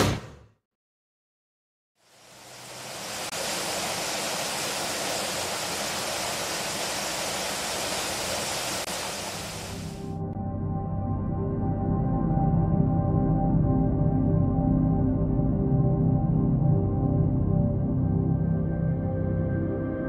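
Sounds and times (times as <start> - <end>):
sea surf washing in: 2.2 - 10.0
ambient music: 10.0 - 20.0.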